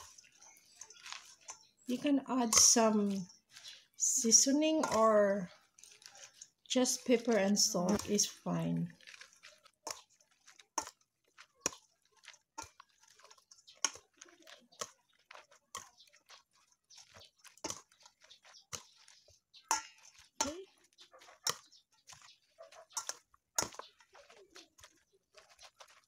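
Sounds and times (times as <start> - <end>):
wet squishing of cabbage: 0.0 - 26.0
spoon clinking against metal bowl: 2.4 - 6.4, 19.6 - 22.3.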